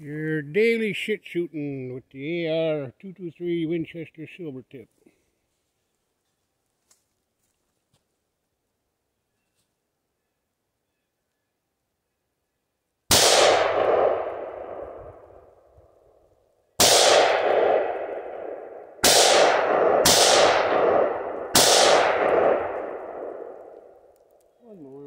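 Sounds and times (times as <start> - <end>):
rifle shots with echo: 13.1 - 15.5, 16.8 - 24.0.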